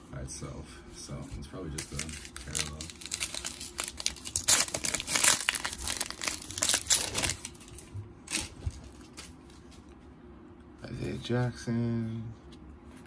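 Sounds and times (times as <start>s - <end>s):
cards being handled: 1.3s - 9.6s
plastic wrapper tearing and crinkling: 1.7s - 9.3s.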